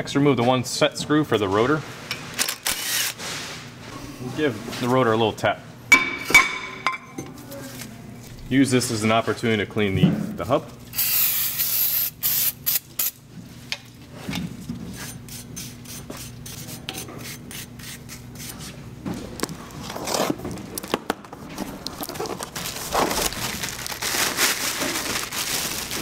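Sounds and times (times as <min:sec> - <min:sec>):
plastic wrapping crinkling: 0:20.6 - 0:26.0.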